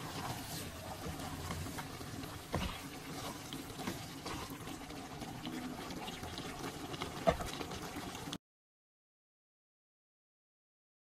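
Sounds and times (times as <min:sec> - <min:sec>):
curry sizzling in a pot: 0:00.0 - 0:08.4.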